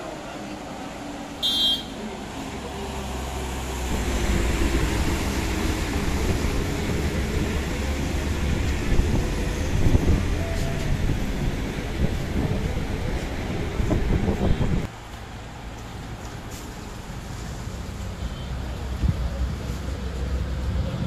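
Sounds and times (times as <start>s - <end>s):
vehicle engine and road rumble: 0.0s - 21.0s
short high beep: 1.4s - 1.9s.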